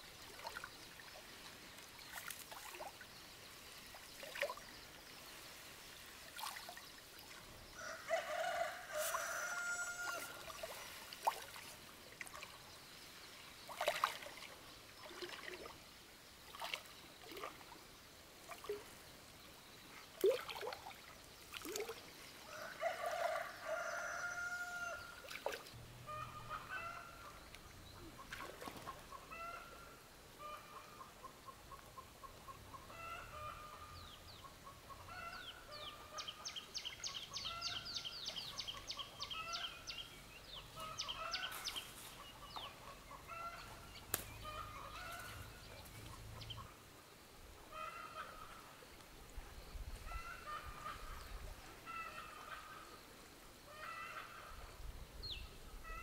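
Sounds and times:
water splashing from wading: 6.2 - 7.5, 10.4 - 12.6, 13.6 - 15.8, 16.4 - 17.8, 20.1 - 22.1, 25.2 - 25.7, 28.2 - 29.1
rooster crowing: 7.8 - 10.4, 22.5 - 25.1.

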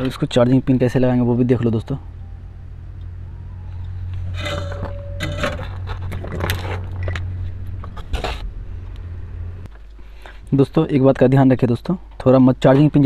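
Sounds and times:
steady low hum: 0.0 - 13.0
clicks and scrapes of parts: 3.7 - 10.5.

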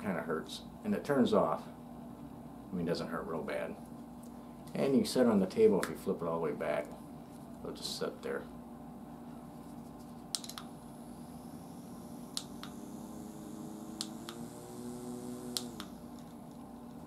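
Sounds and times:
small fan motor whine: 10.3 - 17.0
fan button clicks: 12.3 - 12.8, 13.8 - 14.5, 15.3 - 16.0.

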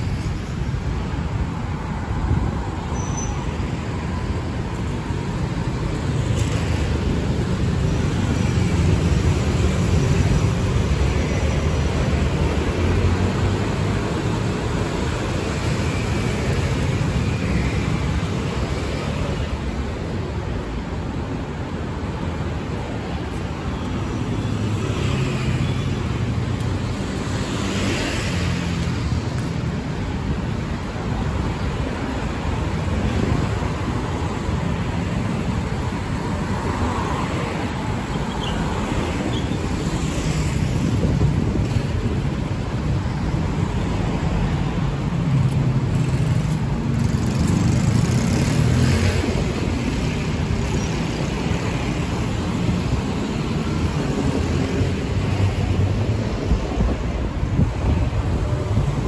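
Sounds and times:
road traffic rumble: 0.0 - 59.0.

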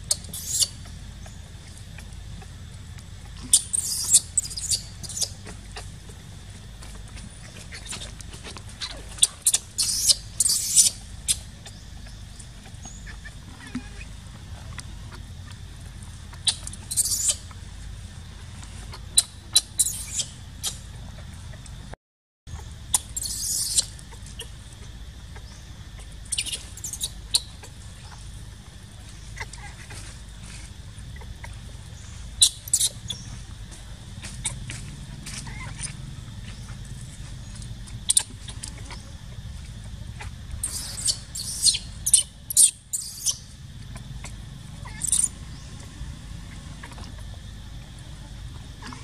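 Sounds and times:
baby monkey squeaking: 0.0 - 1.4, 3.4 - 6.0, 8.8 - 14.1, 16.3 - 17.5, 18.9 - 20.9, 22.6 - 24.6, 25.4 - 28.2, 31.2 - 33.4, 35.4 - 36.8, 37.4 - 39.1, 40.6 - 43.5, 44.8 - 45.7.

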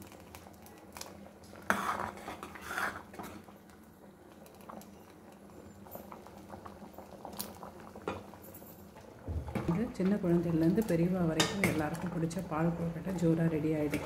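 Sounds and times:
mixture bubbling: 0.0 - 14.0
ladle stirring thick mixture: 1.6 - 3.2.

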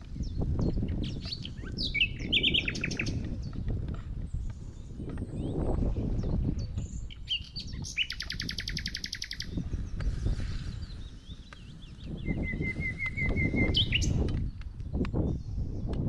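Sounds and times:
small birds singing: 0.0 - 16.0.

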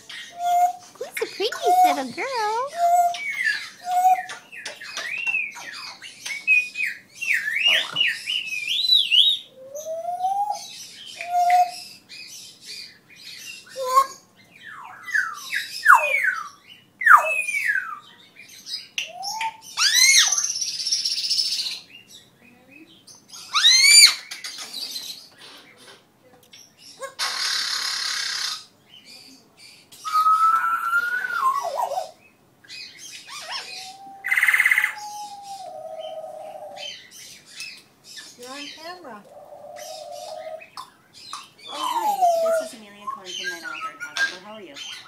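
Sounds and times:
parrot whistling: 0.3 - 3.2
parrot squawking: 0.3 - 4.2, 23.5 - 24.2, 33.3 - 37.0.

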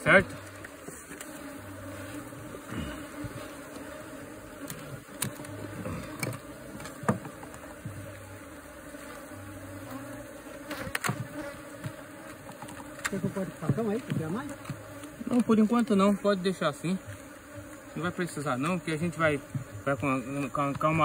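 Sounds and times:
bees buzzing: 0.0 - 21.0.

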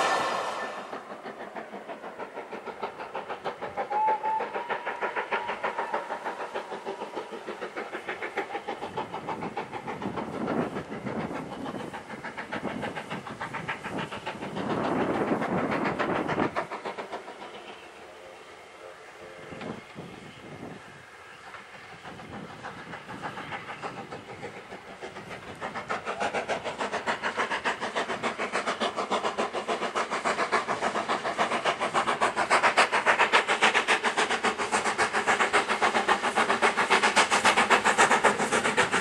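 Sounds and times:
steam locomotive exhaust beating: 0.0 - 39.0.

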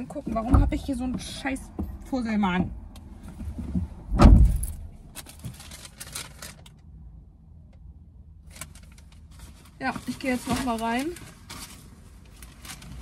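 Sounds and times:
rustling and clattering of shopping: 3.2 - 6.8, 8.4 - 13.0
dull thump: 3.3 - 4.8.

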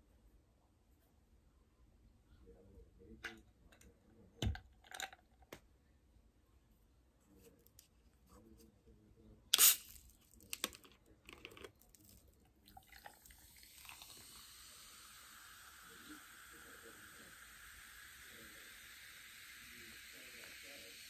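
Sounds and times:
drink poured over ice: 9.6 - 10.7, 11.4 - 18.9
bottle cap cracking open: 9.6 - 10.8.

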